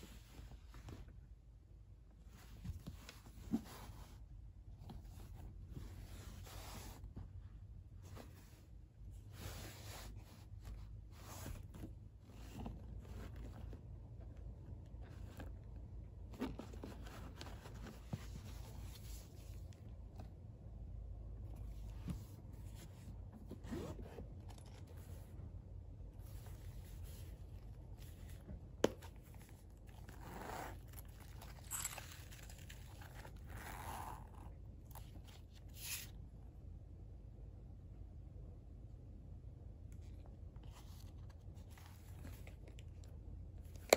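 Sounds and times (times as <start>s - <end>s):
rustling and scraping of leather: 2.1s - 7.4s, 8.0s - 20.4s, 21.4s - 25.5s, 26.1s - 36.2s, 40.0s - 43.9s
canvas bag rustling: 29.3s - 34.5s.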